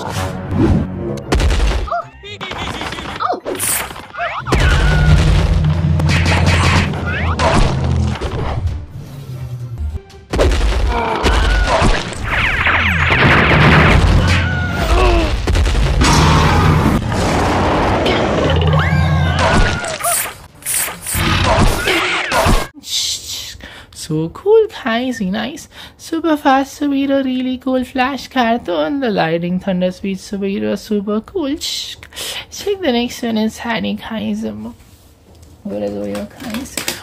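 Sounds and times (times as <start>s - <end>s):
crashing sound effects: 3.8s - 8.6s, 10.3s - 22.7s
booms and thuds: 4.4s - 8.6s, 13.0s - 18.5s.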